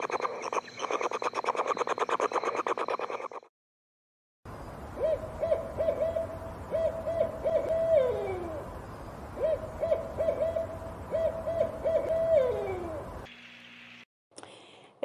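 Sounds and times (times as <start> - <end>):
owl hooting: 0.0 - 3.4, 5.0 - 8.7, 9.4 - 13.2.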